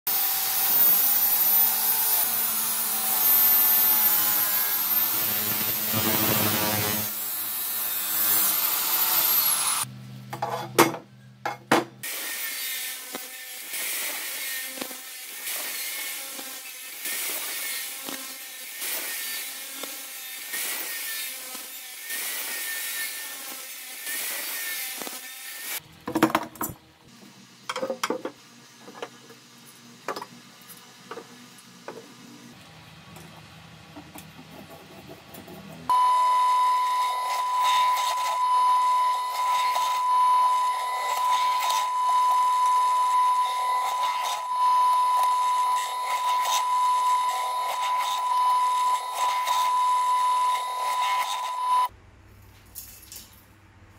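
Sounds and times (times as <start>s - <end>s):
cut-off saw grinding metal: 0.1s - 9.9s, 12.0s - 25.8s, 35.9s - 51.9s.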